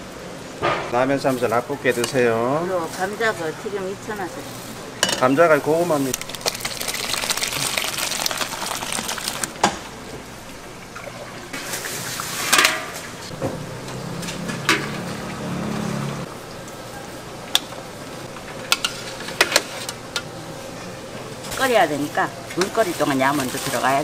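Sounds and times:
utensils clinking on pots: 0:05.0 - 0:05.6, 0:11.1 - 0:13.1, 0:13.9 - 0:15.3, 0:21.5 - 0:24.0
liquid sloshing in a pot: 0:05.9 - 0:09.9.

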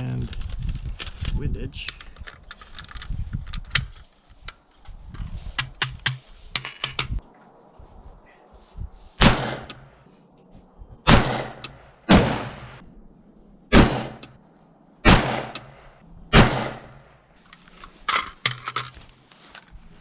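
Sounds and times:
rifle shots with echo: 0:09.2 - 0:09.8, 0:11.0 - 0:12.8, 0:13.7 - 0:14.3, 0:15.0 - 0:17.1.

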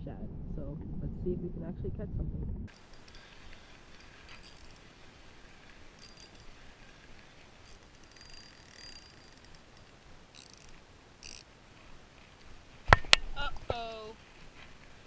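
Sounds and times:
low background hiss: 0:00.0 - 0:15.0
fishing reel clicks and rustling: 0:02.7 - 0:12.5.

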